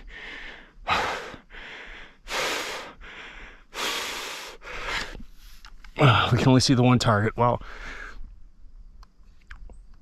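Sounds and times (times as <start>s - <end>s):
man breathing heavily: 0.0s - 6.4s, 7.6s - 8.4s.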